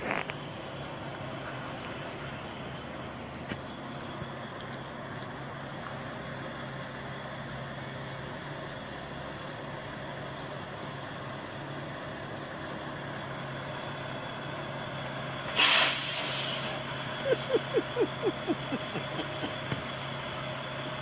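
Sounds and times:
diesel truck engine running: 0.0 - 21.0
air brakes hissing: 15.0 - 17.0.

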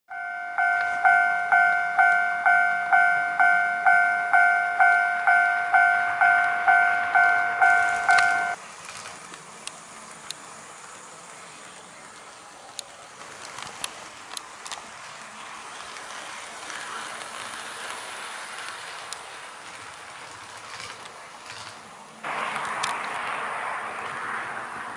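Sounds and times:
level-crossing warning ding: 0.1 - 8.6
model train rolling on track: 0.1 - 24.9.

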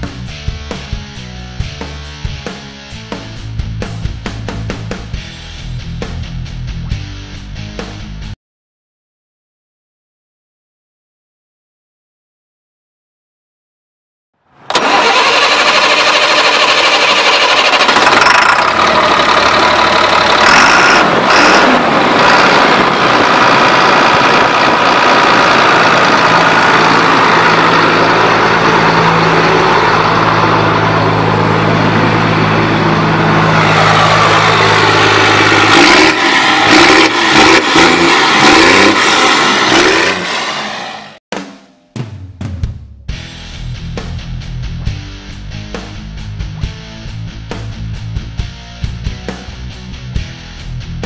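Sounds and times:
diesel engine revving: 14.6 - 41.2.

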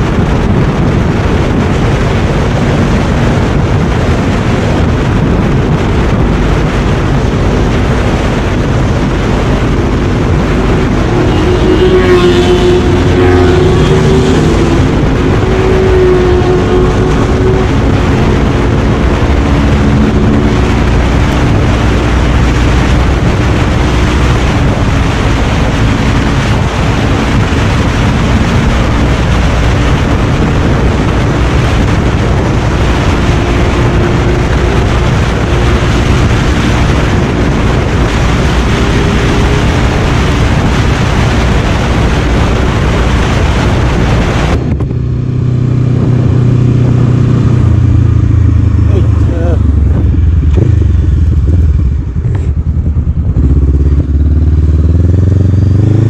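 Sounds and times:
motorcycle engine revving: 0.0 - 56.0
wind rush over microphone: 0.0 - 56.0.

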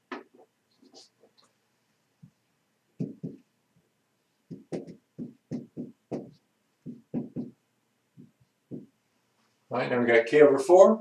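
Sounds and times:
marker writing on whiteboard: 0.1 - 1.5, 3.0 - 3.5, 4.4 - 7.6, 8.2 - 9.0.

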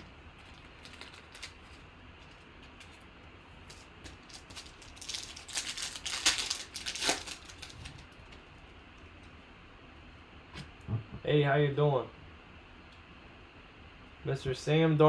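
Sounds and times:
foil wrapper crinkling: 0.0 - 8.7.

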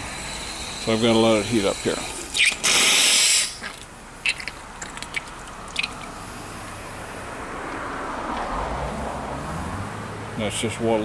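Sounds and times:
steam injector hissing: 0.0 - 3.7
water trickling: 3.6 - 6.8.

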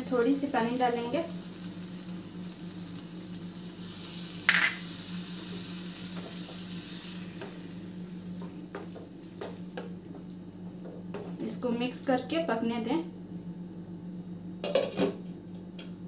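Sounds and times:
tomatoes sizzling in a pan: 0.0 - 12.7.

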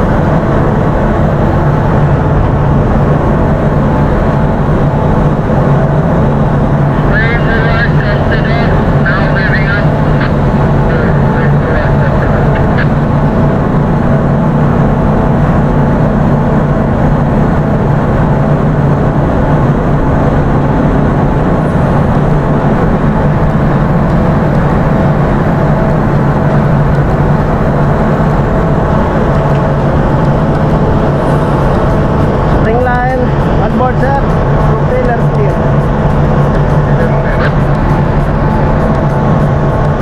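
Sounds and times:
low hum: 0.0 - 40.0
ship machinery droning: 0.0 - 40.0.

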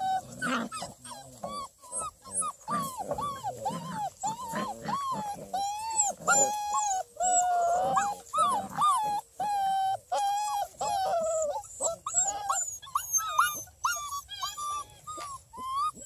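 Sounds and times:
puppies whining: 0.0 - 16.0.

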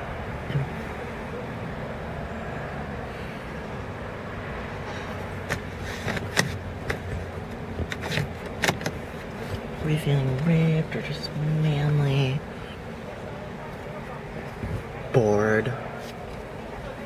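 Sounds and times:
car cabin hum: 0.0 - 17.0.

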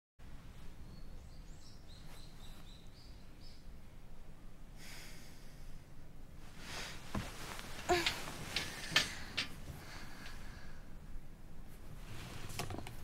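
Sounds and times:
low steady background: 0.2 - 13.0
soft rustle: 1.9 - 2.9, 6.4 - 10.6, 11.6 - 13.0.

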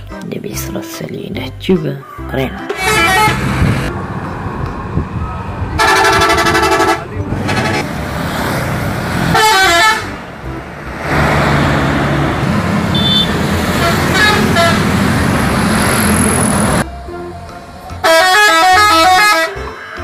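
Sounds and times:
buses driving past: 2.5 - 20.0
bus horn toots: 2.7 - 3.7, 5.8 - 7.9, 9.3 - 10.2, 12.8 - 15.2, 17.9 - 19.8.

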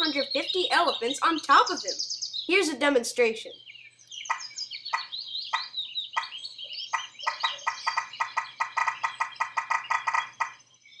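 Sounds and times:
birds chirping: 0.0 - 11.0
animal rasping calls: 4.3 - 10.6.

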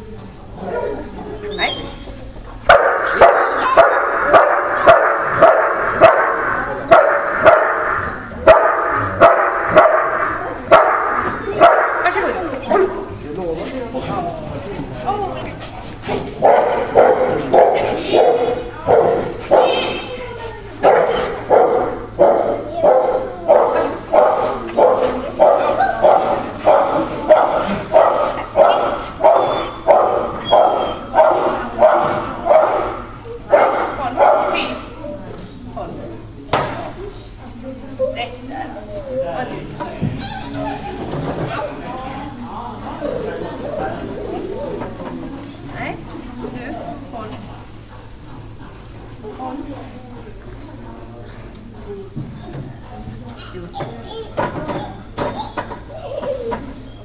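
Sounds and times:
dog barking: 2.7 - 13.0, 16.4 - 20.0, 20.8 - 34.8.

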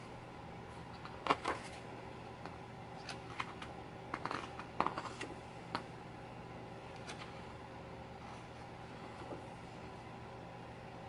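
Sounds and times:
faint steady hum: 0.0 - 11.0
pages turning: 1.0 - 1.8.

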